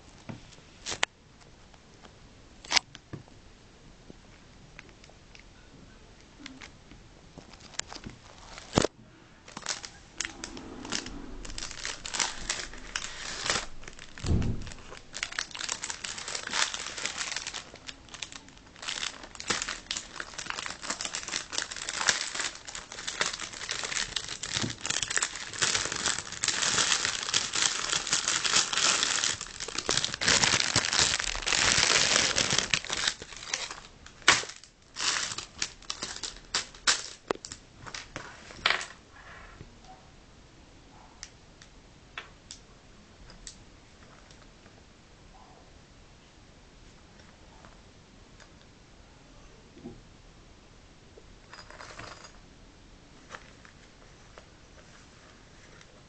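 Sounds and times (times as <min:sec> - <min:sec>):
bag crinkling and rustling: 0:07.4 - 0:08.9, 0:09.5 - 0:38.6
dull thump: 0:14.2 - 0:14.8.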